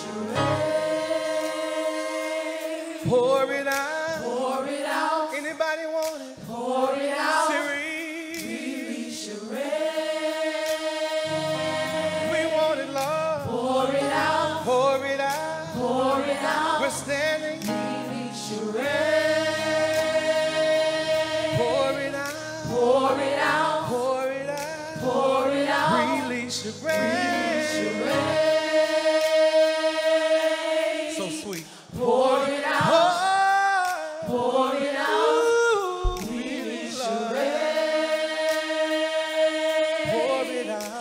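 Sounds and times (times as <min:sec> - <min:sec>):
low steady accompaniment: 0:00.0 - 0:05.0, 0:09.6 - 0:33.4
choir singing: 0:00.0 - 0:05.6, 0:06.4 - 0:41.0.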